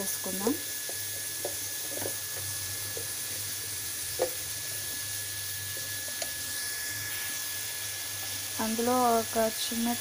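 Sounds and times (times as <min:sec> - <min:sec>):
onions sizzling in hot oil: 0:00.0 - 0:10.0.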